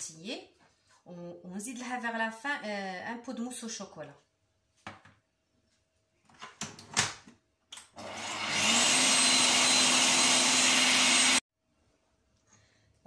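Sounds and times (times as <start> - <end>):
stand mixer motor whisking cream: 8.0 - 11.4.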